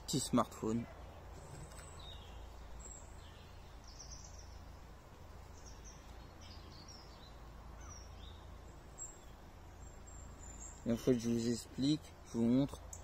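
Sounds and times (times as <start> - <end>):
faint bird chirps: 5.5 - 13.0.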